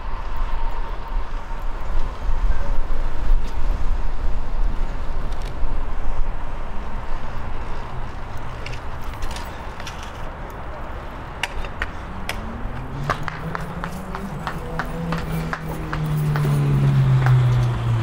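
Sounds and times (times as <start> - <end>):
bicycle road rumble: 0.0 - 18.0
vehicle engine rising in pitch: 12.1 - 18.0.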